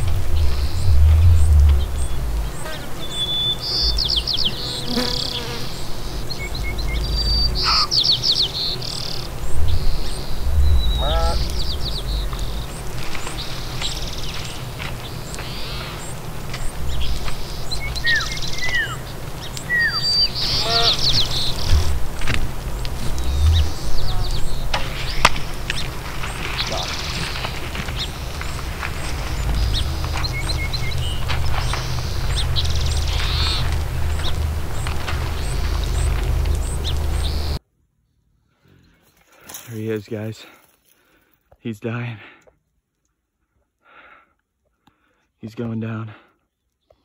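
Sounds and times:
birds trilling: 0.0 - 37.6
birds whistling: 0.0 - 37.6
microphone rumble: 0.0 - 37.6.

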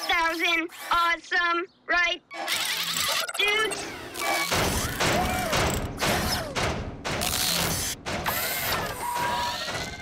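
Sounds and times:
servo whines: 2.3 - 6.6, 7.2 - 10.0
mechanical clanks: 4.0 - 10.0.

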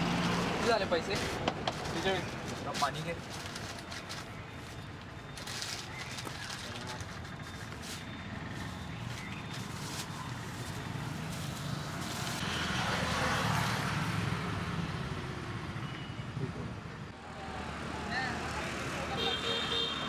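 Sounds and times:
traffic engine rumble: 0.0 - 19.8
vehicle passing: 9.6 - 15.7.

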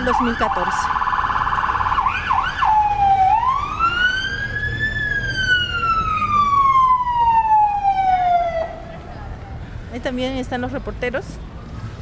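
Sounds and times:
electronic siren wailing: 0.0 - 8.8
low street noise: 0.0 - 12.0.

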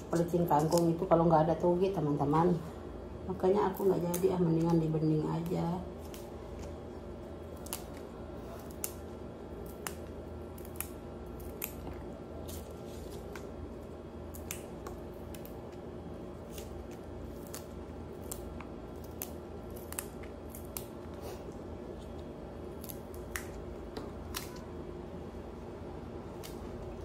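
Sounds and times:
knife cutting vegetable stems: 0.0 - 1.2
steady low hum: 0.0 - 27.0.

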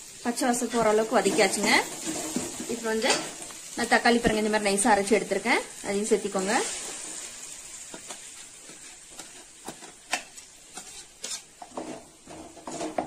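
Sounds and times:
onions sizzling in a pan: 0.0 - 13.0
spoon scraping a jar: 10.7 - 13.0.

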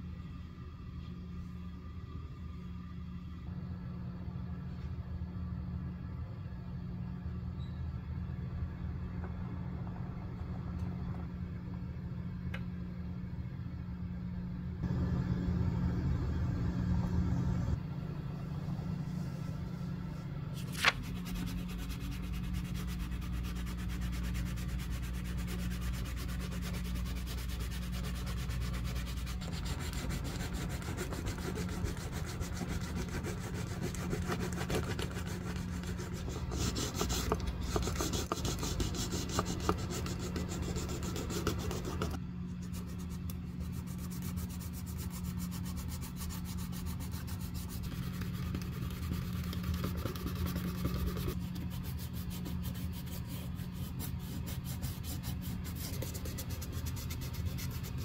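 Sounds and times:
sandpaper rasping on leather: 21.0 - 58.0.

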